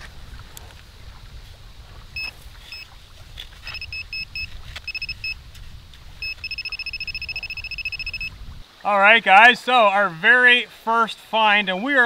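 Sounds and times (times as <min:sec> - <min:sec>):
metal detector pinpointer beeping: 0:02.2 - 0:02.9, 0:03.7 - 0:05.4, 0:06.2 - 0:08.3.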